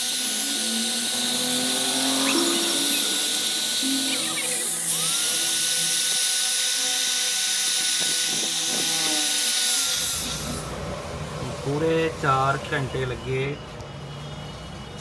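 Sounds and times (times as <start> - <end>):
power tool whining: 0.0 - 11.4.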